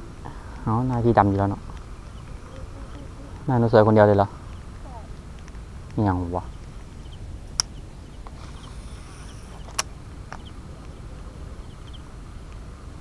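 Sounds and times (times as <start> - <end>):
faint high hiss: 0.0 - 13.0
wind rumble on microphone: 0.0 - 13.0
faint high chirps: 1.7 - 5.3, 6.4 - 12.1
sharp clicks: 7.5 - 11.0.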